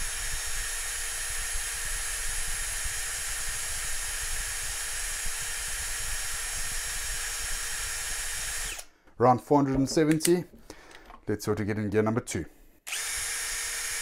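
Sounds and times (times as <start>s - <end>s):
cordless drill whirring: 0.0s - 8.9s, 12.9s - 14.0s.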